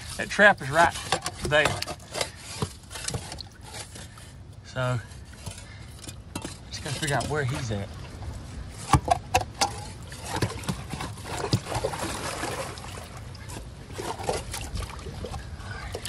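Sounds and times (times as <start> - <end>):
creek water trickling: 0.0 - 16.0.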